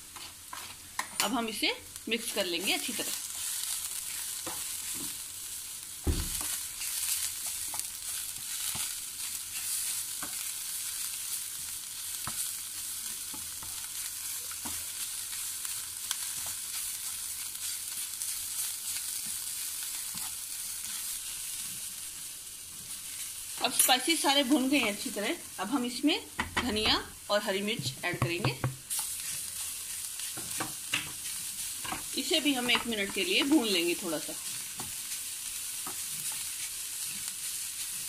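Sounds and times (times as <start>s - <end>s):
onions sizzling in oil: 0.0s - 38.0s
spatula scraping a pan: 28.9s - 33.7s.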